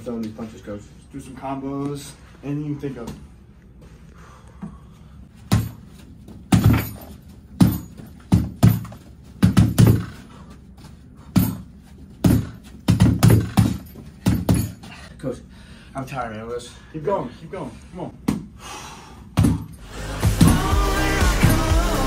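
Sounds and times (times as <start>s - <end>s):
gloves punching heavy bag: 5.4s - 10.4s, 11.2s - 14.9s, 19.4s - 21.9s.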